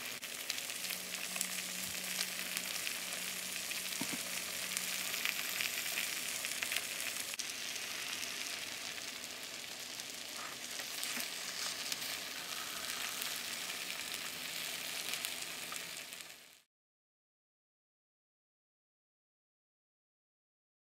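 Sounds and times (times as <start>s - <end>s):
noodles sizzling in hot pan: 0.0s - 16.7s
spatula scraping pan: 10.3s - 14.0s.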